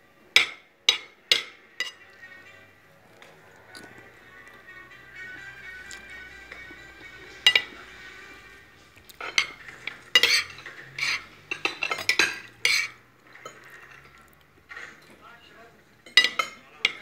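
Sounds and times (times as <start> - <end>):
cutlery clinking on plate: 0.4 - 2.1, 7.5 - 7.8, 9.2 - 15.2, 16.0 - 17.0.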